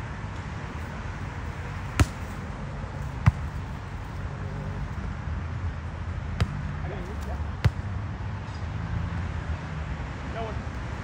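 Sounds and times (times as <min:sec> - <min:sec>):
volleyball slaps: 0:01.9 - 0:02.4, 0:03.2 - 0:03.6, 0:06.4 - 0:06.7, 0:07.6 - 0:07.9.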